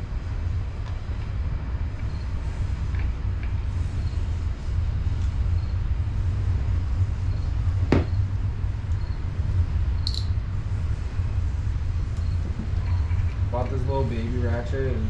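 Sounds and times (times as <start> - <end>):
steady low hum: 0.0 - 15.0
sharp click: 10.0 - 10.3.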